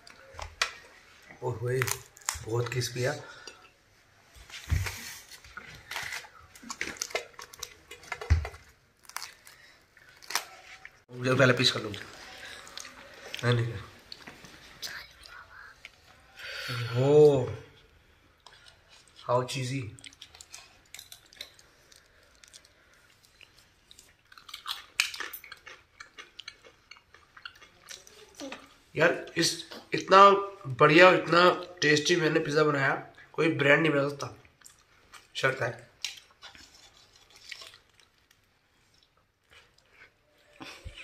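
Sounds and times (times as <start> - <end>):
person chewing pizza: 5.2 - 11.0, 11.8 - 16.1, 17.8 - 30.0, 36.0 - 41.0.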